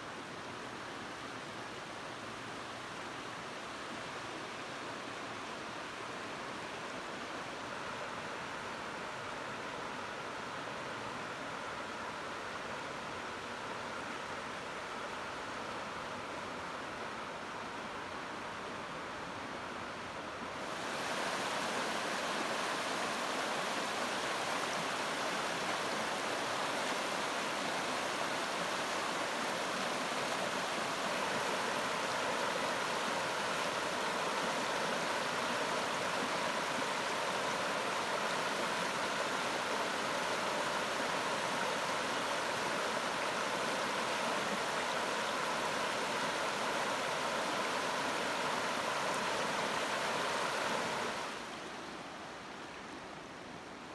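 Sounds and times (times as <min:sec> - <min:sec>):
river rushing over rocks: 0:00.0 - 0:53.9.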